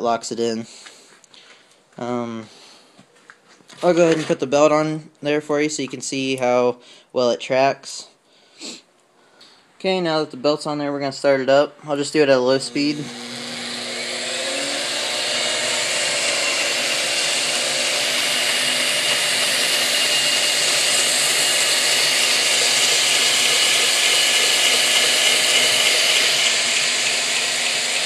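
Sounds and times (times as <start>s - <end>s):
belt grinder whirring: 11.9s - 28.0s.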